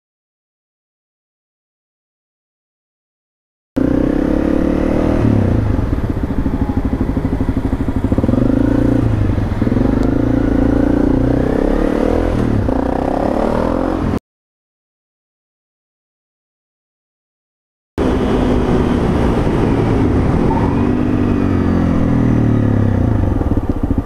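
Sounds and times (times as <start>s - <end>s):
motorcycle engine revving: 3.8s - 14.2s, 18.0s - 24.0s.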